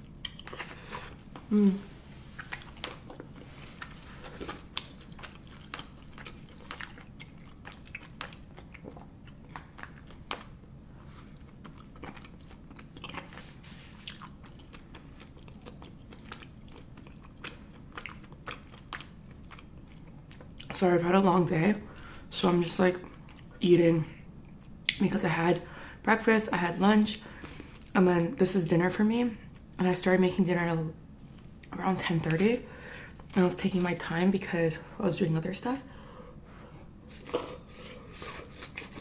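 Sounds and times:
person chewing: 0:00.0 - 0:20.7, 0:37.0 - 0:39.0.

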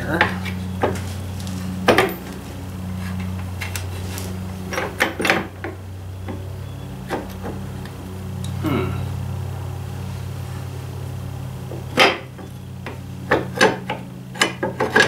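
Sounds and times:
sharp metal knocks: 0:01.8 - 0:02.3, 0:04.7 - 0:06.4, 0:11.9 - 0:15.0.

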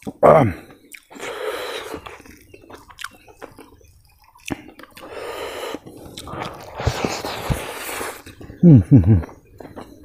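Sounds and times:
wet chewing and lip-smacking: 0:00.0 - 0:10.0
sharp wet mouth clicks: 0:00.9 - 0:06.6.

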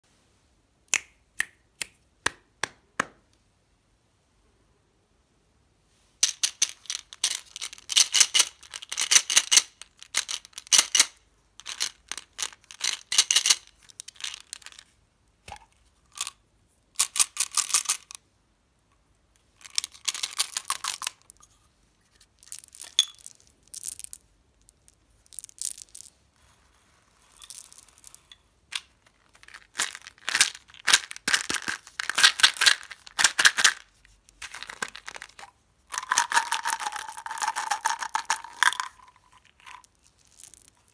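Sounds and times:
candies rattling in containers: 0:06.2 - 0:14.8, 0:19.6 - 0:21.2, 0:27.4 - 0:33.8, 0:34.4 - 0:40.9
plastic packaging crinkling: 0:28.7 - 0:33.8, 0:34.4 - 0:40.9.

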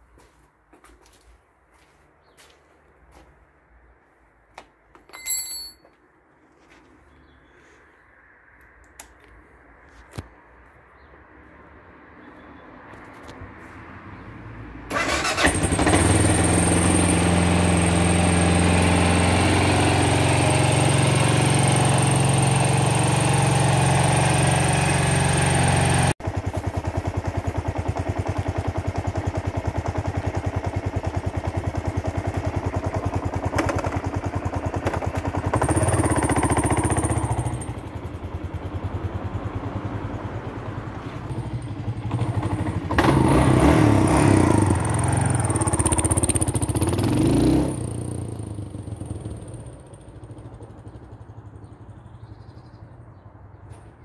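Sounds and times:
motorcycle engine idling: 0:14.9 - 0:54.0.

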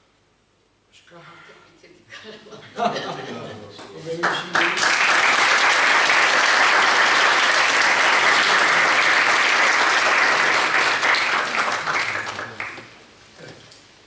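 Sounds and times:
audience applauding: 0:03.8 - 0:13.0.

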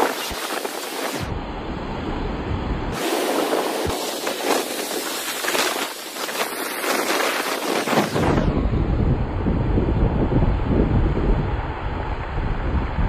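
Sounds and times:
waves breaking over rocks: 0:00.0 - 0:01.3, 0:02.9 - 0:08.5
wind buffeting microphone: 0:00.0 - 0:13.0.

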